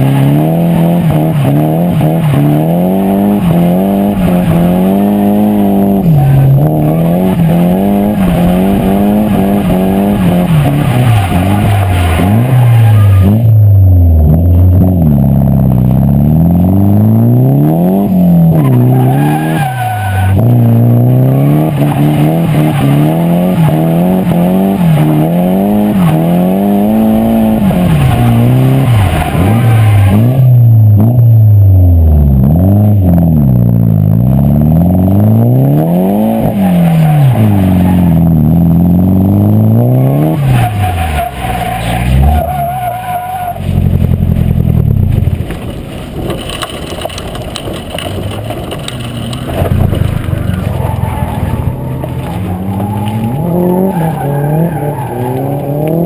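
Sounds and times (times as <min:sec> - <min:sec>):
car engine revving hard: 0:00.0 - 0:44.9, 0:49.0 - 0:56.0
tyres squealing: 0:05.9 - 0:13.6, 0:18.4 - 0:30.6, 0:35.8 - 0:44.0, 0:46.7 - 0:56.0.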